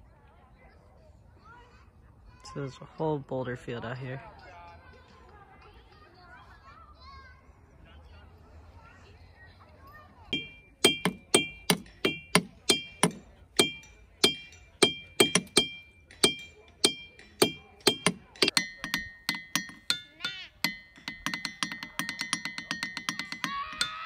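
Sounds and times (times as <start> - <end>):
hammer striking ringing boulder: 10.4 - 24.0.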